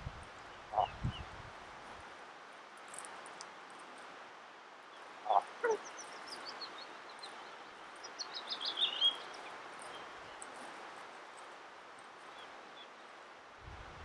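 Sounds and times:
ptarmigan low calls: 5.2s - 6.0s.

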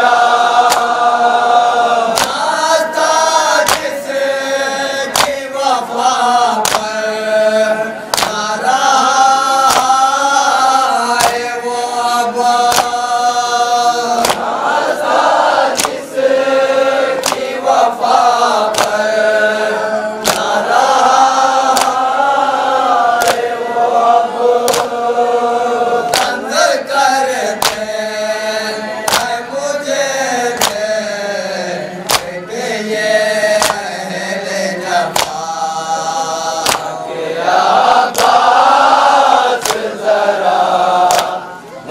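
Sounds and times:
men chanting in unison: 0.0s - 41.9s
hands slapping chests: 0.6s - 1.0s, 2.1s - 2.6s, 3.5s - 4.0s, 5.0s - 5.5s, 6.6s - 7.0s, 8.1s - 8.5s, 9.6s - 10.1s, 11.1s - 11.5s, 12.6s - 13.1s, 14.2s - 14.6s, 15.7s - 16.1s, 17.2s - 17.6s, 18.6s - 19.1s, 20.2s - 20.7s, 21.7s - 22.1s, 23.1s - 23.5s, 24.6s - 25.0s, 26.1s - 26.5s, 27.6s - 27.9s, 29.1s - 29.4s, 30.6s - 30.8s, 32.0s - 32.4s, 33.6s - 33.9s, 35.0s - 35.5s, 36.6s - 37.0s, 38.1s - 38.5s, 39.6s - 40.0s, 41.1s - 41.4s.

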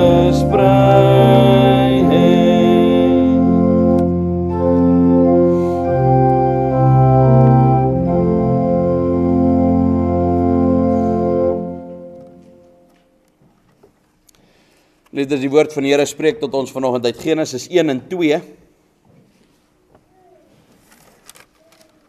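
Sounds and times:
organ playing hymn chords: 0.0s - 13.2s.

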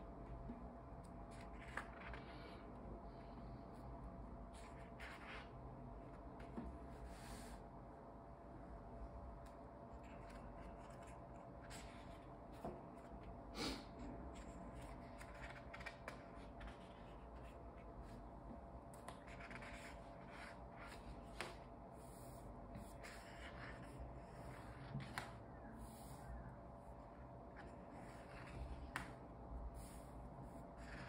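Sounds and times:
low steady hum: 0.0s - 31.0s
paper pages rustling: 1.3s - 2.5s, 19.0s - 21.7s.

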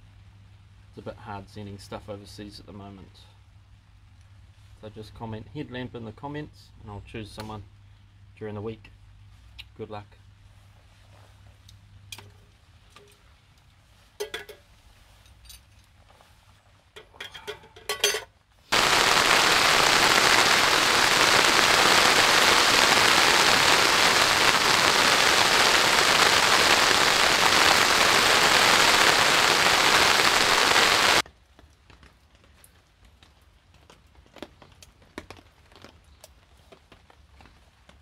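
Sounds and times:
heavy rain: 18.7s - 31.2s.

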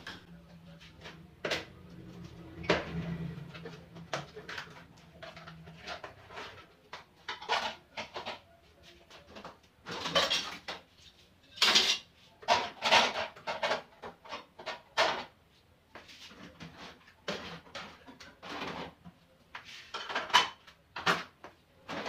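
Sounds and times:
dishes clattering into a rack: 11.6s - 15.3s, 19.9s - 21.3s.

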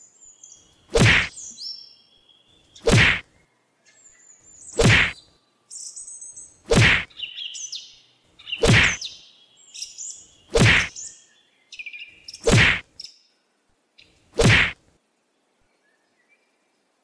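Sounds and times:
birds chirping: 0.0s - 14.8s
heavy thuds: 1.0s - 1.3s, 2.9s - 3.2s, 4.8s - 5.2s, 6.7s - 7.1s, 8.6s - 9.0s, 10.6s - 10.9s, 12.5s - 12.8s, 14.4s - 14.8s.

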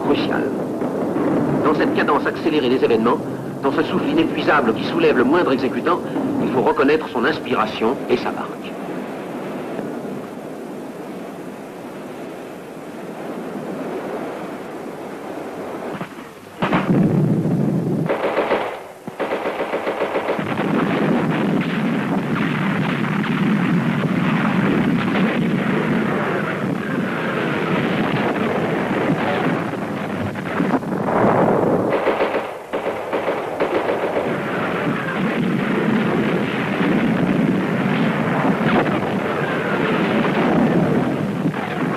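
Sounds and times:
machine-gun fire: 16.6s - 41.9s.

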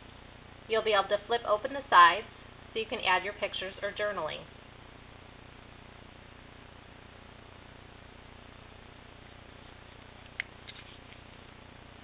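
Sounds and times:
low room tone hiss: 0.0s - 12.0s
paper page turning click: 10.4s - 11.2s.

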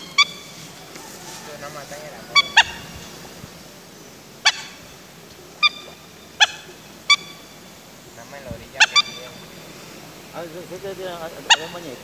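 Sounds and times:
waterfowl honking: 0.0s - 3.3s, 4.4s - 9.7s, 10.4s - 12.0s.

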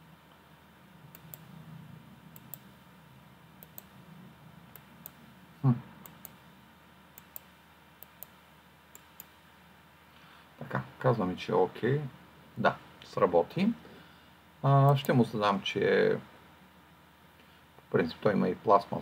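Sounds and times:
computer mouse clicks: 1.1s - 1.5s, 2.3s - 2.7s, 3.6s - 3.9s, 4.7s - 5.2s, 6.0s - 6.4s, 7.2s - 9.4s.

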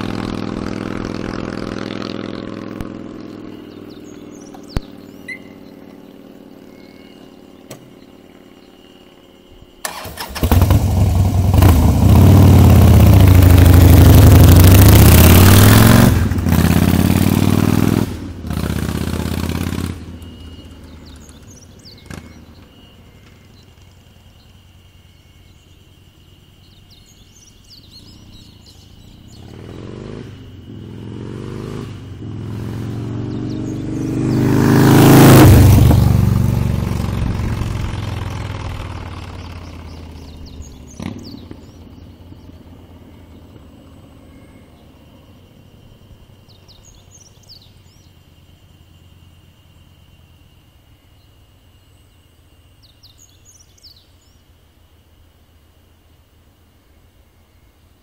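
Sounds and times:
motorcycle passing at speed: 0.0s - 23.2s, 27.9s - 47.9s.

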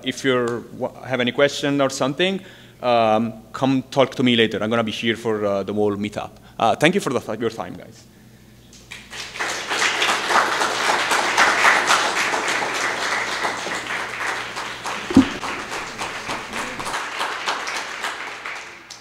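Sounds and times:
audience applause: 8.9s - 19.0s
brief thump: 15.1s - 15.4s.

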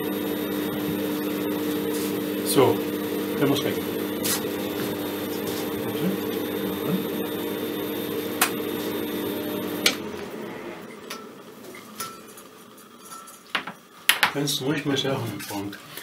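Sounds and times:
electrical buzz: 0.0s - 12.0s.

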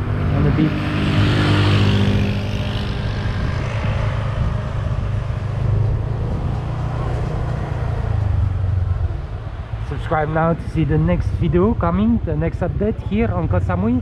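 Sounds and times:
motor scooter engine droning: 0.0s - 9.8s
scooter passing: 0.0s - 10.4s
road and wind noise: 0.0s - 14.0s.

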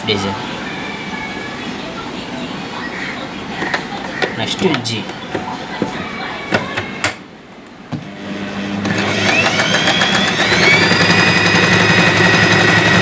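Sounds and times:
sewing machine motor whine: 8.2s - 13.0s.

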